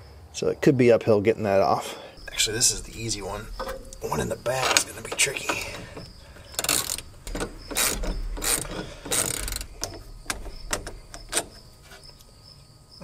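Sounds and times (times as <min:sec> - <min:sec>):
ratchet wrench clicking: 0:05.2 - 0:11.5.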